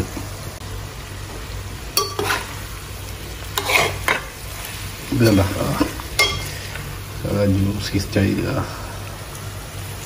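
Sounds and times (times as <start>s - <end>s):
frying sizzle: 0.0s - 10.0s
metal spoon scraping pot: 2.0s - 2.5s, 3.6s - 4.3s.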